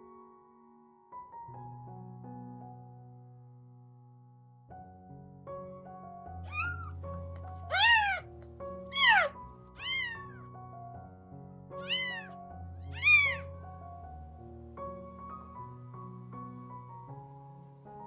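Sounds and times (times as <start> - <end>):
soft background music: 4.7 - 18.0
kitten mewing: 6.5 - 7.0, 7.7 - 8.3, 8.9 - 10.4, 11.8 - 13.5.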